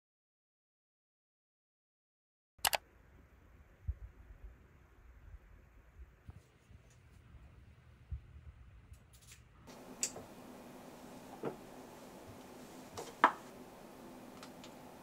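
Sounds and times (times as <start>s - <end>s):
faint steady hum: 2.7s - 15.0s.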